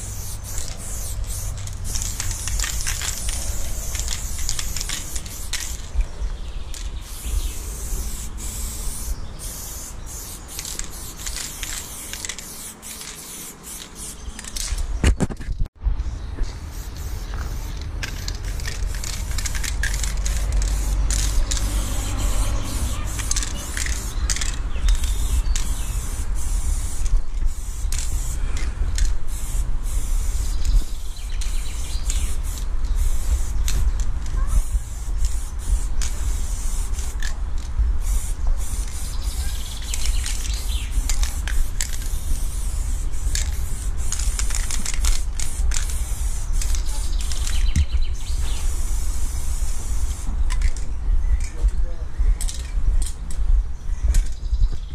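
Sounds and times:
spray paint can hissing: 0:00.0 - 0:06.0, 0:06.7 - 0:14.9, 0:16.4 - 0:50.9
steady low rumble: 0:00.0 - 0:12.4, 0:15.8 - 0:46.8.

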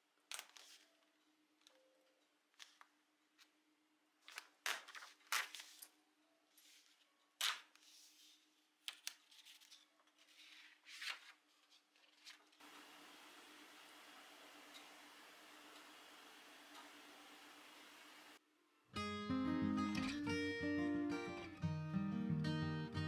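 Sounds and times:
paper page rustling and crackling: 0:04.2 - 0:05.9, 0:06.6 - 0:12.6
faint steady hum: 0:12.6 - 0:18.4.

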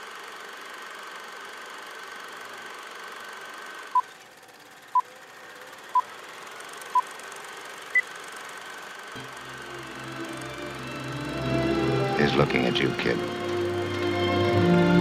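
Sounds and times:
faint whine: 0:09.1 - 0:15.0
low music: 0:09.2 - 0:15.0.

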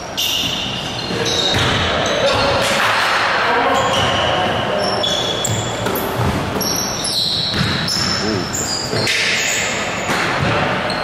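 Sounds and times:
sneakers squeaking on wooden floor: 0:00.0 - 0:02.8, 0:03.5 - 0:11.0
basketball bouncing: 0:01.5 - 0:01.9, 0:05.5 - 0:06.8, 0:07.4 - 0:08.3.

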